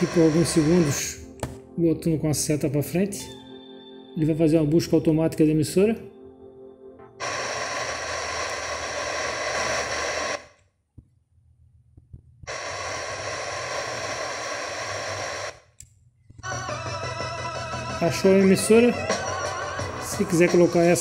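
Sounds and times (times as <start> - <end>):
radio static hiss: 0.0 - 1.2, 7.2 - 10.5, 12.5 - 15.7.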